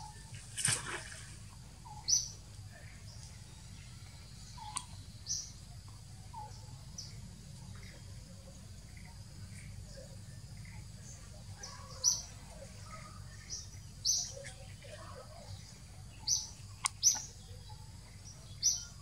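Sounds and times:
bird chirping: 1.8 - 19.0
sharp click: 16.8 - 17.2.

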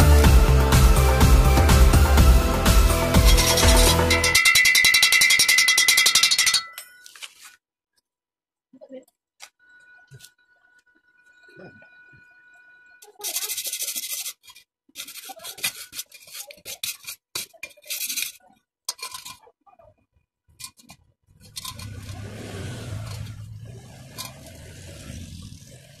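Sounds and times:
hand file scraping on steel: 3.0 - 4.4, 13.0 - 19.3.

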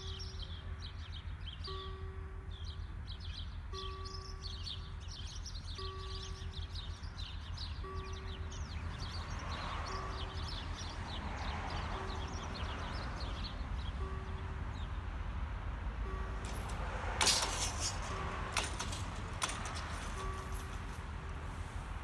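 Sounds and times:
birds chirping: 0.0 - 15.4, 17.4 - 21.2
level crossing warning bell: 0.0 - 22.0.

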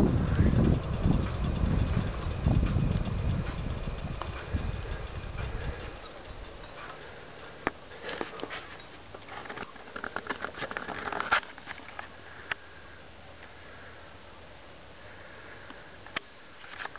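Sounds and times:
bicycle clicks and rattles: 0.0 - 12.7, 16.0 - 16.9
faint steady hiss: 10.6 - 16.9.

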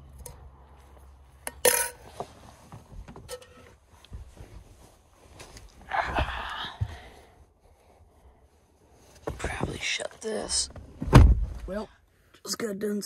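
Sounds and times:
small knocks and rustling: 2.0 - 5.8.

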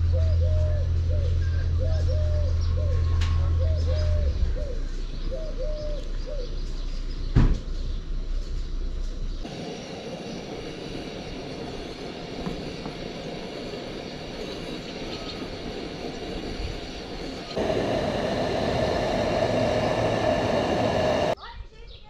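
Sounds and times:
faint steady tones: 9.4 - 21.4
gas stove flame hiss: 9.4 - 21.4.

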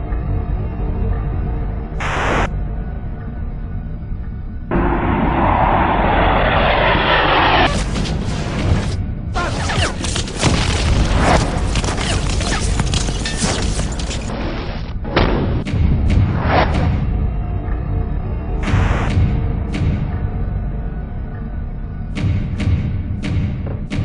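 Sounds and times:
brooding music: 0.0 - 14.3, 15.0 - 24.0
aircraft roar: 4.3 - 10.0
booms and sharp impacts: 4.7 - 12.9, 15.0 - 17.4.

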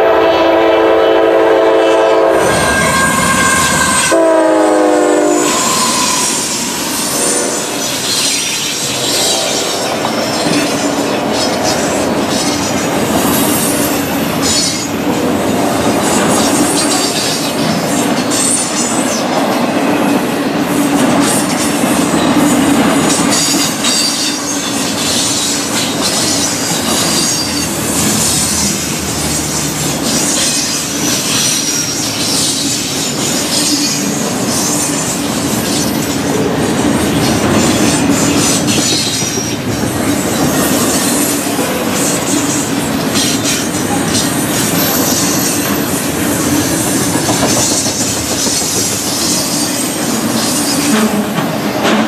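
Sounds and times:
freight train rumble: 0.0 - 52.0
high-pitched wheel squeal: 2.2 - 12.8, 23.4 - 36.0
wheels clattering over rail joints: 21.2 - 52.0.

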